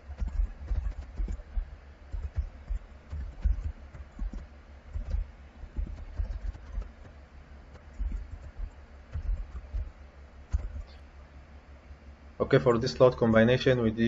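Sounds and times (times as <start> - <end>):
typing on computer keyboard: 0.0 - 1.4, 2.1 - 7.2, 7.8 - 9.9.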